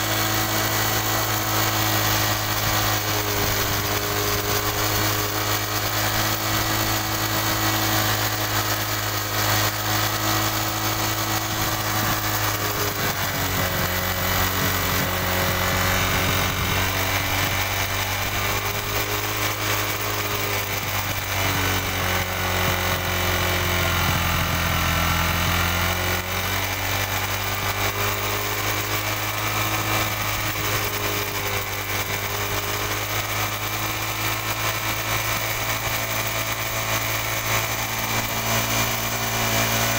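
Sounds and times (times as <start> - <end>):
motorcycle engine idling: 0.0 - 39.9.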